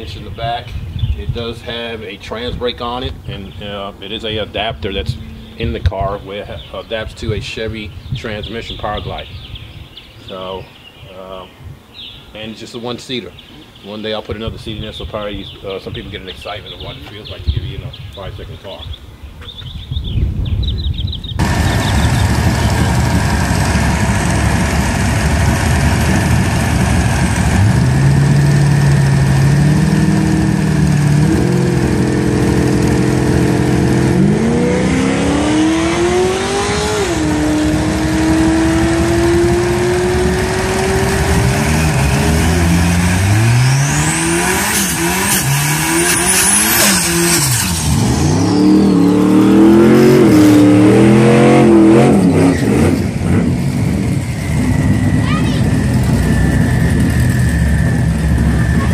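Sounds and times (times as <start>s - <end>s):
car engine revving: 3.1s - 6.4s, 21.4s - 58.9s.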